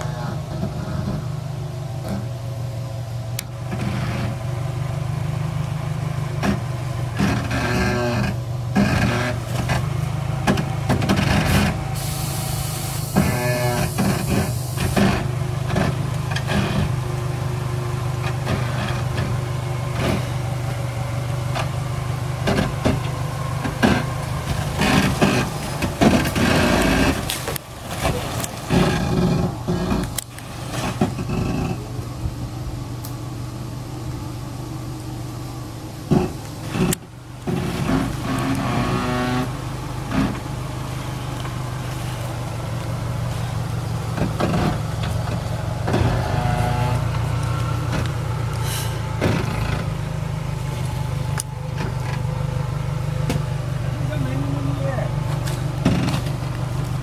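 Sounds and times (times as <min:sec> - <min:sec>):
van engine running at low revs: 0:00.0 - 0:57.0
hiss: 0:11.9 - 0:15.1.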